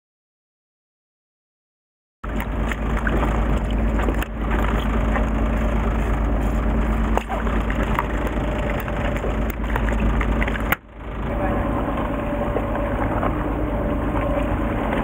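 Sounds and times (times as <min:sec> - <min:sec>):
boat engine rumbling: 0:02.2 - 0:15.0
sharp clicks and crackles: 0:02.3 - 0:10.9.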